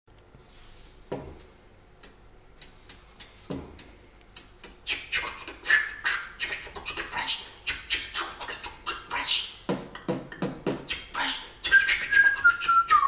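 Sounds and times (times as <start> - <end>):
sharp percussive clicks and snaps: 1.4 - 4.8.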